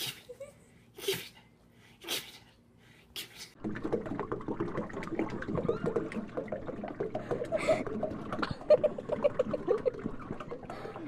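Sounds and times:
water splashing in metal sink: 3.6s - 11.0s.

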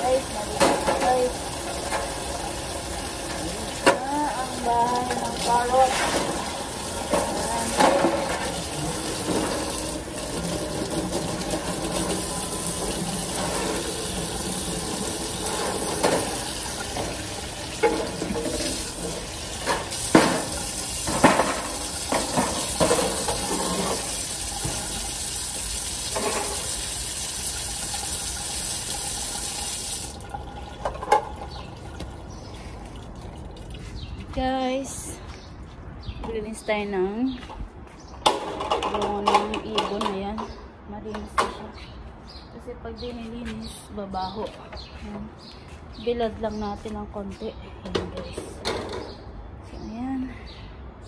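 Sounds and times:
hose water splashing on tiles: 0.0s - 34.2s.

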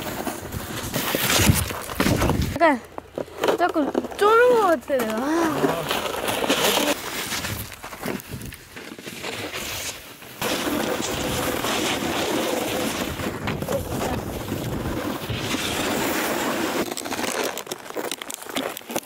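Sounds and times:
snowboard scraping over snow: 5.4s - 17.2s.

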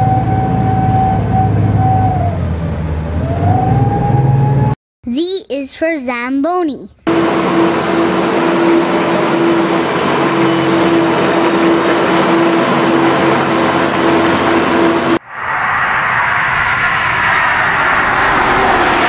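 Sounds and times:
ice resurfacer running: 7.1s - 15.2s.

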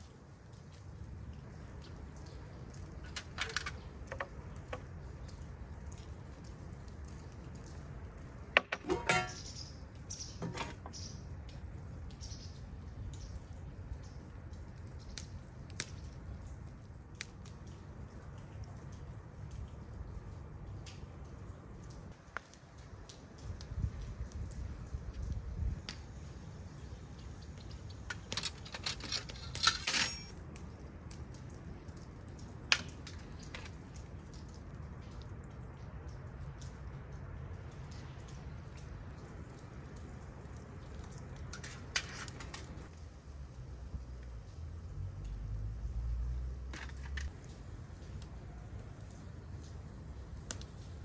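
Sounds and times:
skewer scraping: 8.6s - 9.5s, 10.4s - 10.9s
metal skewers clinking on tray: 8.8s - 9.5s, 28.1s - 30.3s.

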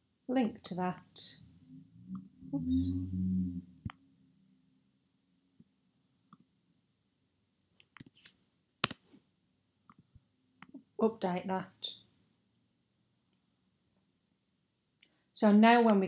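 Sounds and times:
mouse and keyboard clicks: 7.8s - 9.0s.

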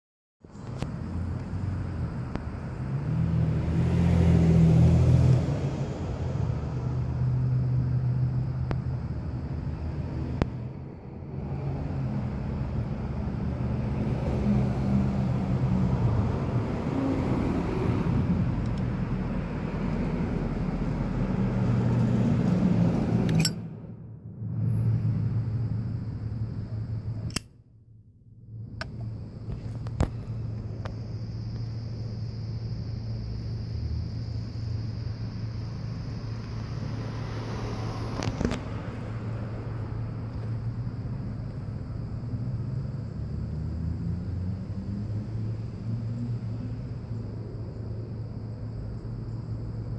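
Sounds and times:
engine rumbling: 0.4s - 49.9s
sharp clicks: 27.2s - 27.6s.

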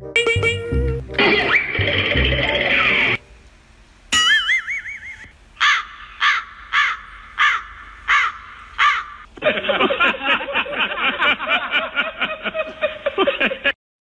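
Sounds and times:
crow cawing: 5.6s - 9.3s.

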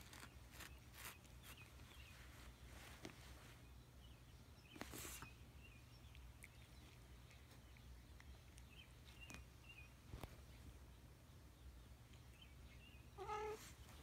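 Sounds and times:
cat rustling against clothes: 0.0s - 3.8s, 4.7s - 5.3s.

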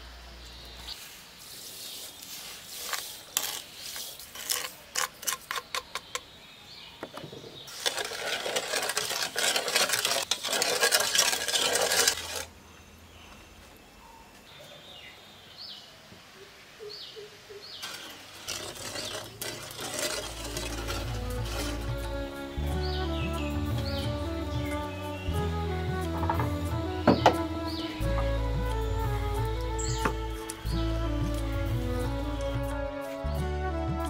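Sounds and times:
utensil stirring in pot: 7.7s - 12.5s, 17.8s - 22.4s.

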